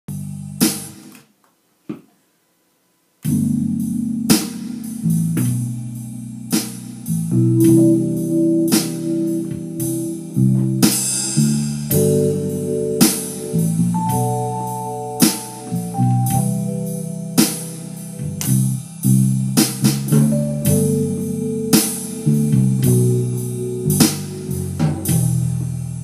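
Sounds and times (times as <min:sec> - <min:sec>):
electric piano chords: 0:03.2 - 0:26.0
sequenced backing track: 0:03.2 - 0:26.0.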